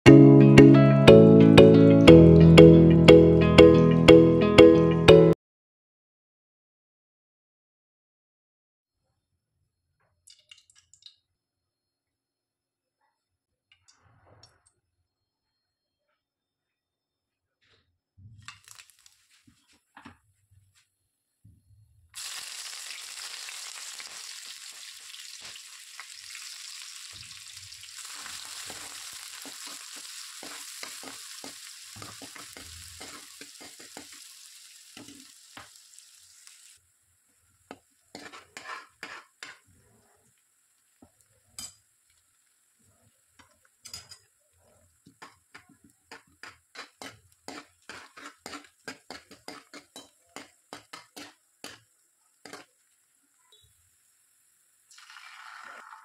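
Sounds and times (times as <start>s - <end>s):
food sizzling in hot oil: 18.4s - 19.6s, 22.2s - 56.0s
spoon scraping in pan: 27.9s - 35.8s, 37.3s - 42.3s, 43.3s - 44.4s, 45.0s - 52.9s.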